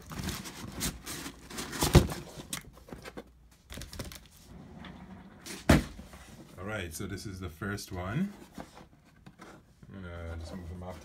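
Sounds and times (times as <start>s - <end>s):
loud knock on box: 5.7s - 6.0s.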